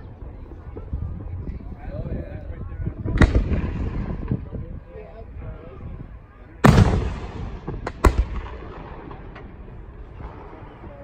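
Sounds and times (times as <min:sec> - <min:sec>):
firework boom: 0:06.6 - 0:09.6
firework cracks: 0:06.6 - 0:09.7.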